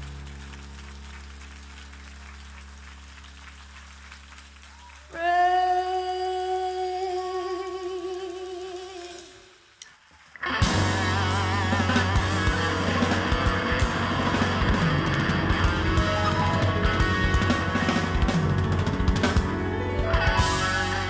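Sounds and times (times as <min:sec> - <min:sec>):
woman singing a long note: 0:05.1 - 0:09.4
live band playing: 0:10.4 - 0:21.0.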